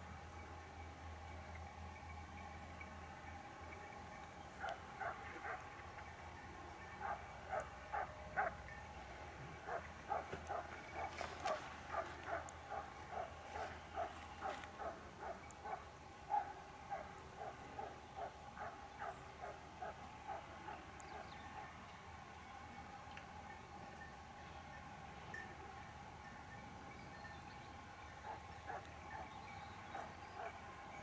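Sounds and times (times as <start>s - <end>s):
dogs barking: 4.6s - 5.8s, 6.9s - 8.7s, 9.6s - 21.3s, 28.2s - 30.6s.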